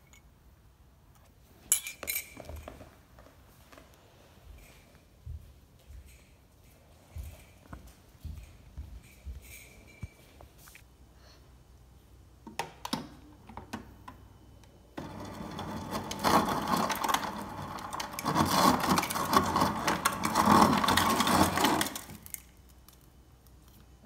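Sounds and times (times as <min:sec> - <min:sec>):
ice dispenser motor: 0:15.0 - 0:22.4
ice clattering into a cup: 0:15.0 - 0:22.5.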